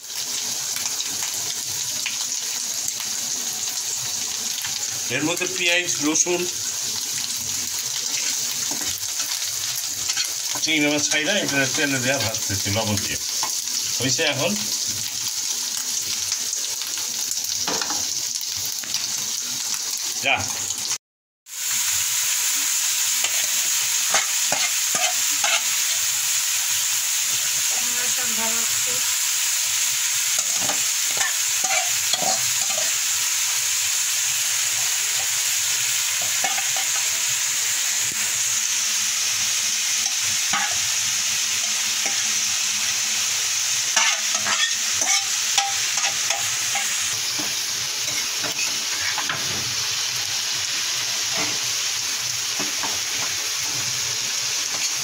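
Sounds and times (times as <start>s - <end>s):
food sizzling in a frying pan: 0.0s - 55.0s
spatula scraping a pan: 8.0s - 9.4s, 10.0s - 11.6s, 23.2s - 25.9s, 30.4s - 33.0s, 36.2s - 37.1s, 40.0s - 40.9s, 43.9s - 49.7s.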